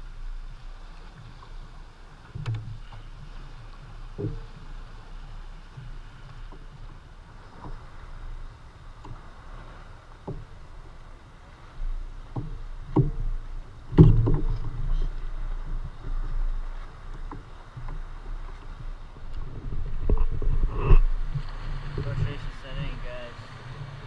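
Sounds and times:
low steady rumble: 0.0 - 24.0
water lapping against kayak: 0.0 - 24.0
knocks on hull: 12.3 - 15.0.

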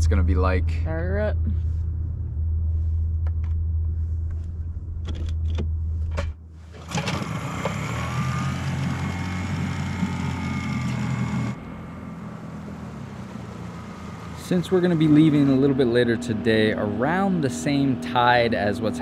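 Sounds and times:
low rumble: 0.0 - 6.7
sharp clicks and knocks: 4.3 - 7.8
outboard engine running: 6.7 - 19.0.

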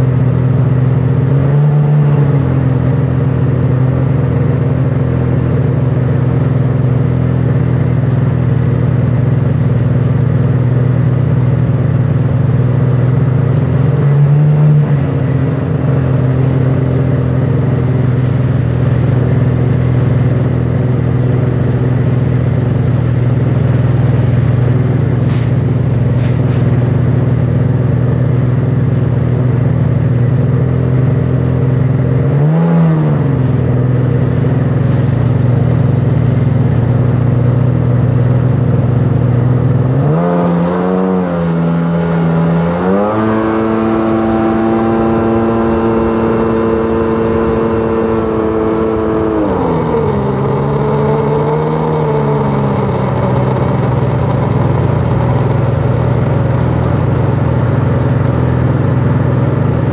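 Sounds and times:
watercraft engine revving: 12.9 - 29.6, 30.4 - 57.4.

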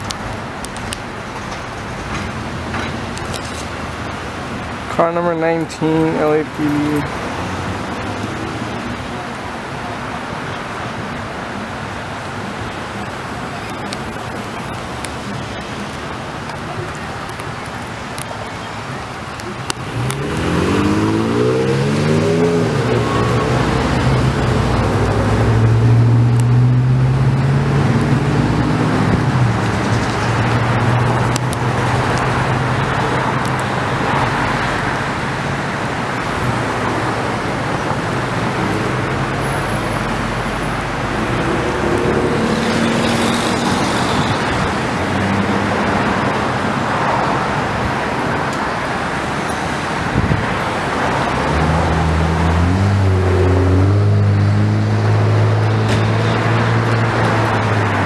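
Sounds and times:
vehicles passing: 0.0 - 58.0
vehicle accelerating: 19.6 - 35.3, 36.2 - 47.5, 50.2 - 58.0.

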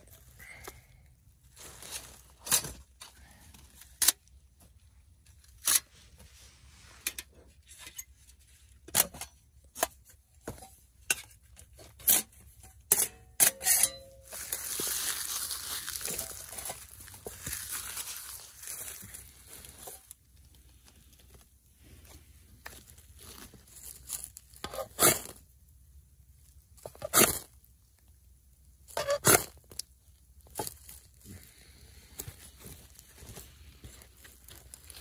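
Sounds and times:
dry leaves crinkling: 1.4 - 3.9, 14.2 - 24.6, 30.4 - 35.0.

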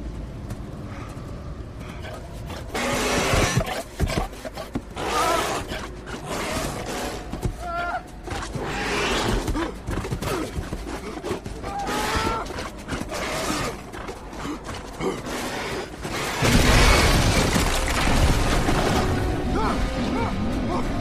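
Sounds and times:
cracking crashing impacts: 16.4 - 19.2.

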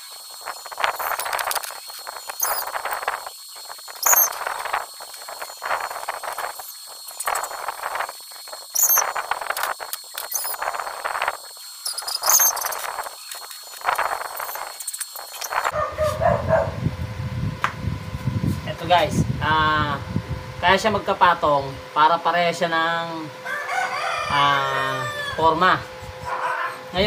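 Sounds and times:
welding arc crackling: 0.0 - 15.8.

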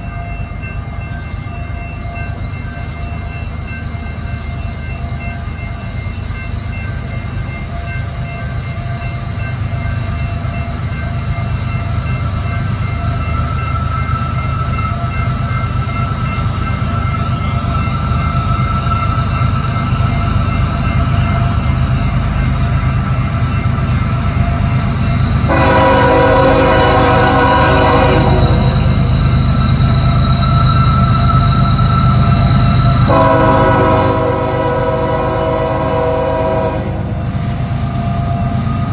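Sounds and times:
diesel locomotives rumbling: 0.0 - 38.9
locomotive air horn chord: 25.5 - 28.8, 33.1 - 37.2.

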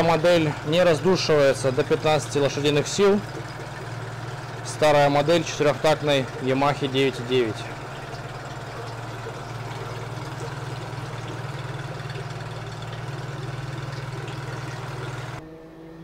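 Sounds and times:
outboard motor running: 0.0 - 15.4.

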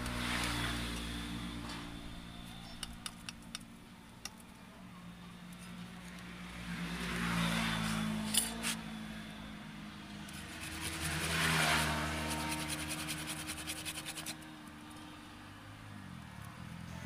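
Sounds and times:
vehicle engine running low: 0.0 - 14.4
pruning saw rasping through wood: 10.3 - 14.5.

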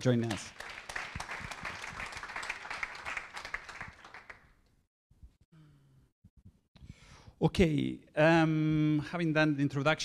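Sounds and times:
audience applause: 0.2 - 4.5.

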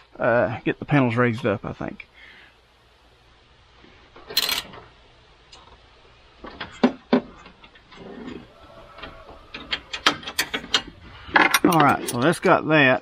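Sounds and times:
hardware clicks and knocks: 6.4 - 8.0, 9.0 - 12.4
scraping rustle: 6.4 - 12.4.

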